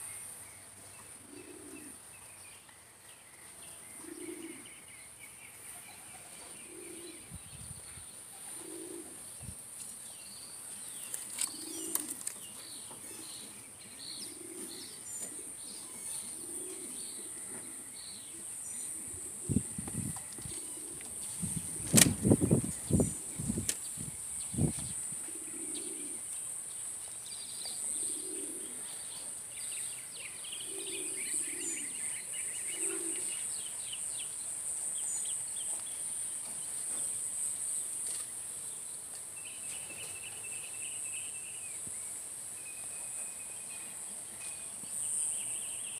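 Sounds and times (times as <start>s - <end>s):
small birds chirping: 0.0s - 45.9s
pigeons cooing: 1.0s - 2.1s, 3.8s - 4.9s, 6.0s - 7.4s, 8.3s - 9.4s, 11.2s - 23.7s, 24.6s - 26.4s, 27.8s - 29.5s, 30.2s - 33.5s.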